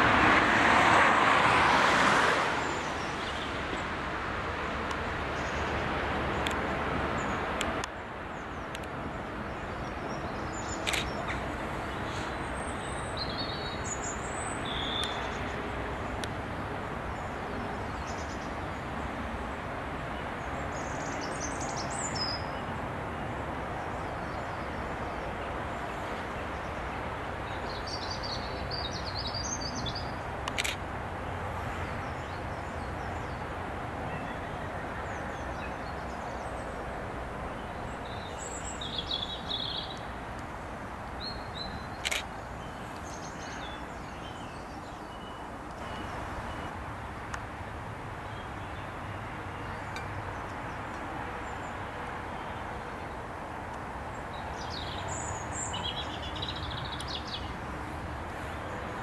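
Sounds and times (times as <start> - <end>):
outdoor background noise: 0.0 - 59.0
small birds chirping: 7.2 - 16.3, 37.5 - 46.8, 54.1 - 59.0.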